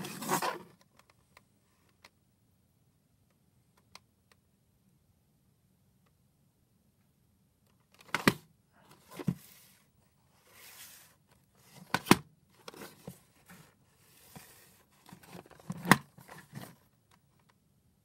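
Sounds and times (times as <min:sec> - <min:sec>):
tape case rustling scrapes: 0:00.0 - 0:00.8, 0:08.9 - 0:16.9.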